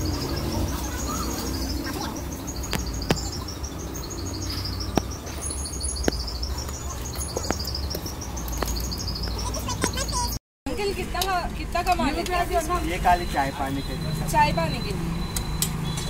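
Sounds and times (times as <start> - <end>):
rapid high chirps: 0.0 - 10.4
low street rumble: 0.0 - 16.0.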